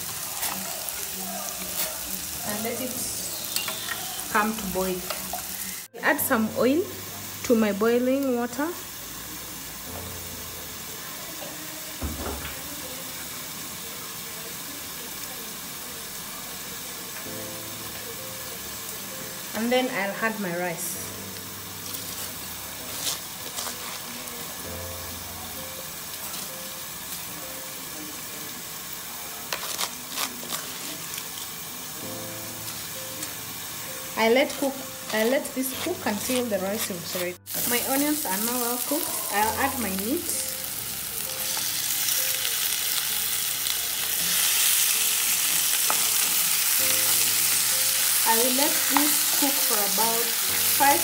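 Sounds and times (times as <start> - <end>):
sizzling hiss of cooking: 0.0 - 51.0
spatula tapping and scraping: 22.9 - 24.0, 29.5 - 30.9.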